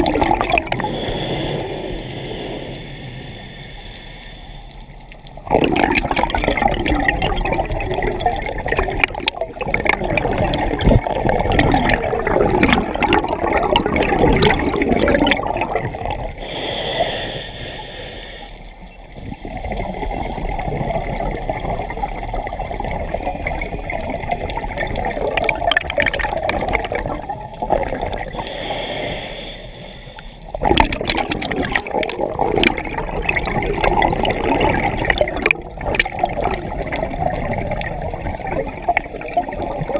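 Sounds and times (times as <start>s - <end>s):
bubbles rushing underwater: 0.0s - 1.0s, 5.4s - 16.5s, 19.3s - 28.4s, 30.5s - 39.9s
regulator inhale hiss: 0.8s - 5.2s, 16.3s - 20.6s, 23.0s - 24.2s, 28.3s - 30.6s.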